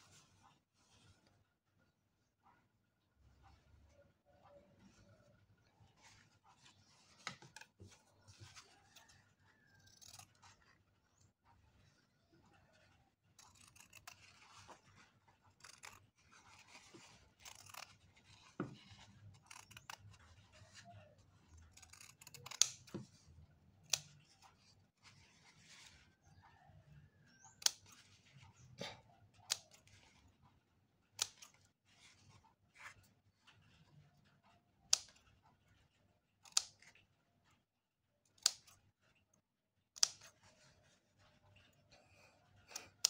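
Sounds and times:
scissors cutting fabric: 0:05.9 - 0:26.4, 0:27.2 - 0:30.4, 0:31.0 - 0:37.1, 0:38.2 - 0:39.2, 0:39.9 - 0:42.0, 0:42.6 - 0:43.0
scissor blades clicking: 0:13.4 - 0:14.7, 0:15.5 - 0:20.1, 0:21.7 - 0:23.0, 0:31.2 - 0:31.6.

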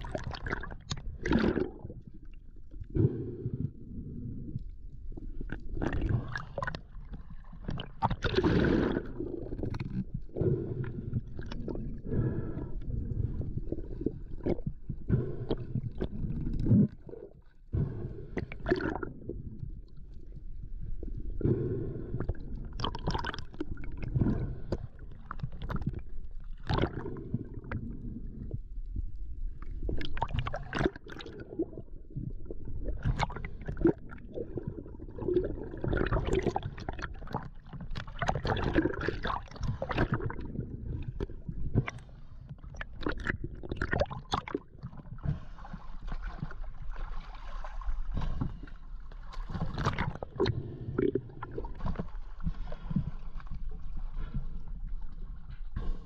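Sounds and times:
bubbles: 0:00.0 - 0:02.4, 0:05.5 - 0:10.2, 0:18.4 - 0:20.0, 0:22.7 - 0:27.9, 0:29.7 - 0:42.0, 0:42.6 - 0:45.2, 0:49.5 - 0:52.0.

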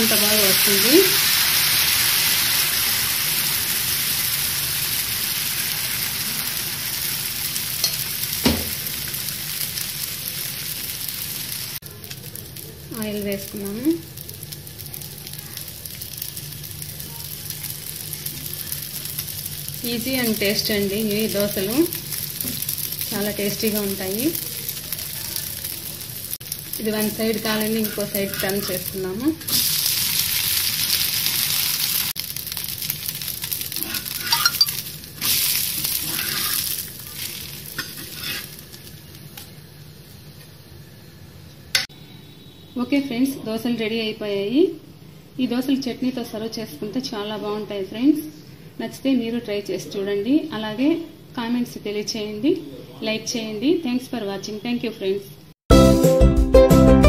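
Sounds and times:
batter sizzling on hot pan: 0:00.0 - 0:42.7.

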